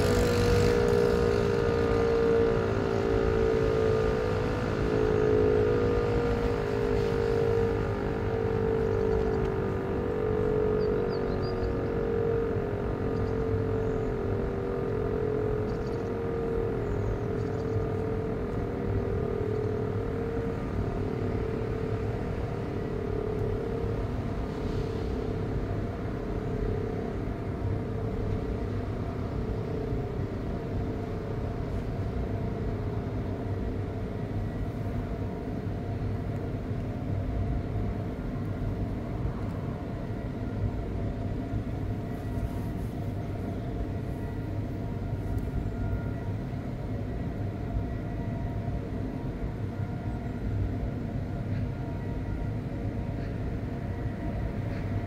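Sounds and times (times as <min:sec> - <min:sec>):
electric motor siren pulsing: 0:00.0 - 0:55.0.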